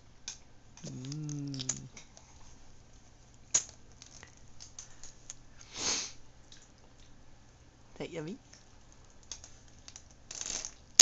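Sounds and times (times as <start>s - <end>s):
person humming: 0.8s - 2.0s.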